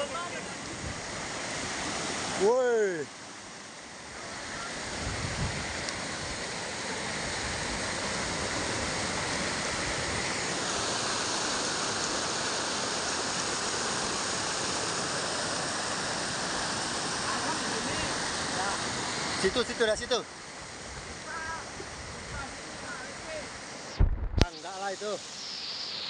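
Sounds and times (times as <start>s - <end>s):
stream rushing over boulders: 0.0s - 26.0s.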